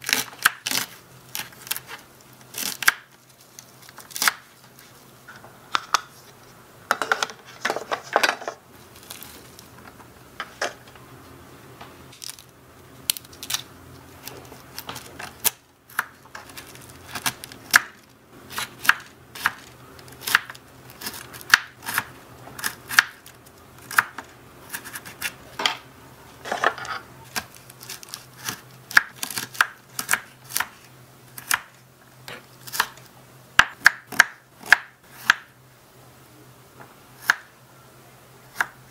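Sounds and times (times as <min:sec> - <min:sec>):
faint steady hum: 0:00.0 - 0:38.9.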